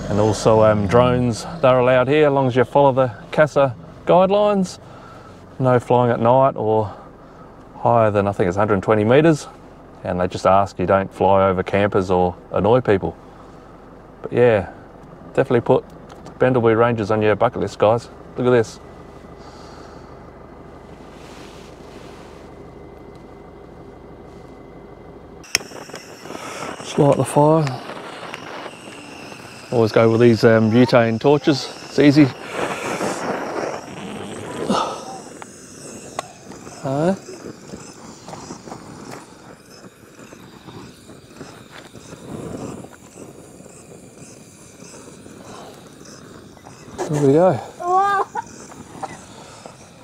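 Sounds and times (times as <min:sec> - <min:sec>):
outdoor ambience: 0:00.0 - 0:50.0
vehicle engine rumbling: 0:00.0 - 0:50.0
dull rustle: 0:20.8 - 0:22.6
engine cut-off click: 0:25.4 - 0:47.5
butane torch: 0:25.4 - 0:50.0
kindling crackling: 0:25.4 - 0:50.0.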